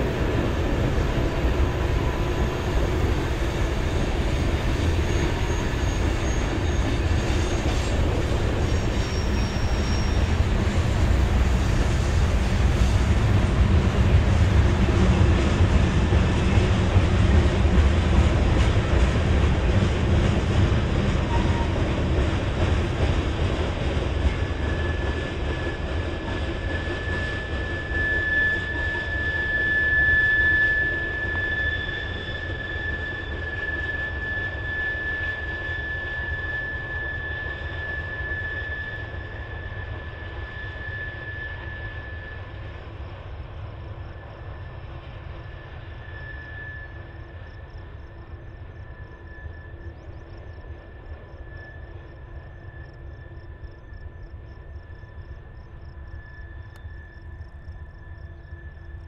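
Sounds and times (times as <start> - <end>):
freight train rumbling: 0.0 - 59.0
high-pitched wheel squeal: 4.8 - 10.6, 21.2 - 22.0, 24.3 - 42.7, 45.4 - 47.8.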